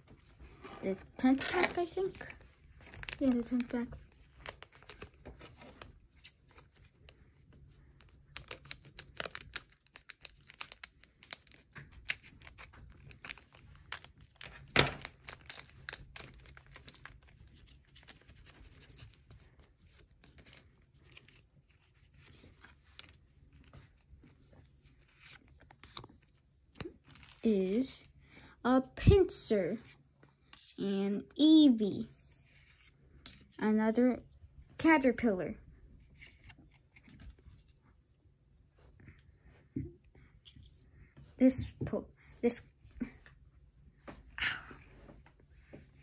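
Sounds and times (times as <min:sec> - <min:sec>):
foil wrapper crinkling: 0:01.2 - 0:05.9, 0:08.3 - 0:19.1.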